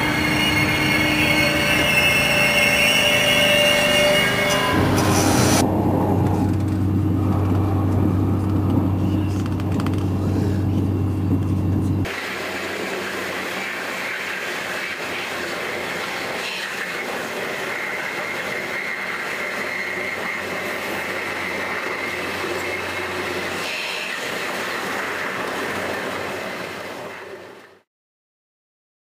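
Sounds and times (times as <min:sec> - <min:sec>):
high wheel squeal: 0:00.0 - 0:05.7, 0:12.0 - 0:27.6
train rolling rumble: 0:00.0 - 0:27.8.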